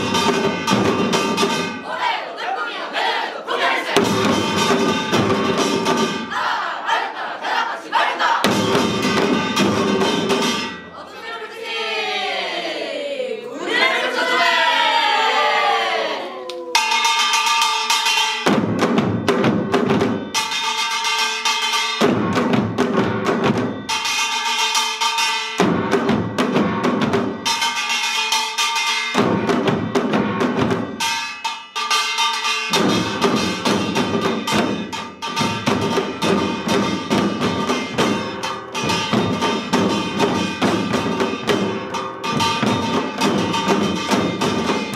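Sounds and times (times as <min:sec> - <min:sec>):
metal percussion ringing: 0:00.0 - 0:02.0, 0:04.0 - 0:06.5, 0:08.4 - 0:11.1, 0:16.8 - 0:44.9
drums beating: 0:00.0 - 0:12.4, 0:13.5 - 0:44.9.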